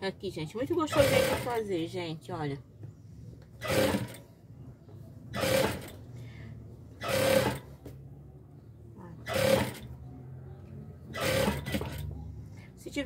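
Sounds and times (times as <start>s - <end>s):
sewing machine stitching fabric: 0.7s - 1.7s, 3.6s - 4.3s, 5.3s - 6.0s, 7.0s - 7.8s, 9.2s - 10.0s, 11.1s - 12.2s.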